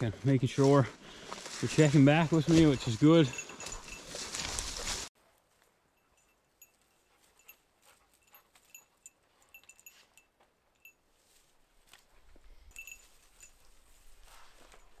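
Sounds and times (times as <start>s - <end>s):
dog collar jingling: 2.1s - 5.0s, 6.0s - 11.0s, 12.6s - 15.0s.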